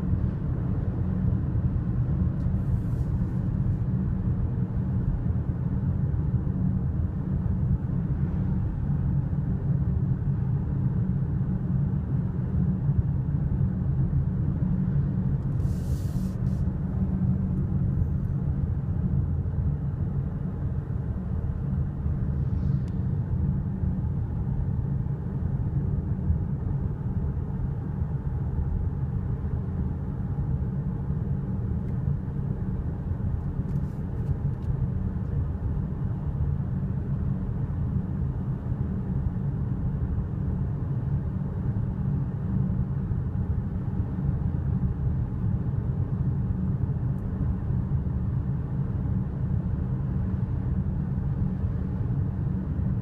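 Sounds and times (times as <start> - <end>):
car cabin road rumble: 14.0 - 37.6
brief hiss: 15.5 - 16.7.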